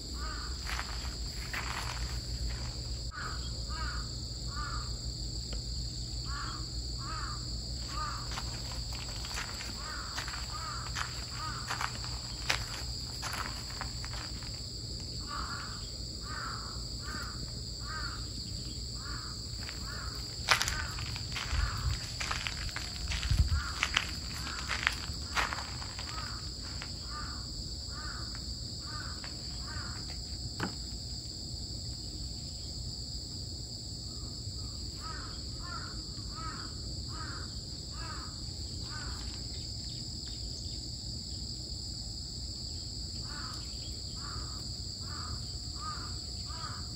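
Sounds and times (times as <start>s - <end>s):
insects droning: 0.0s - 46.9s.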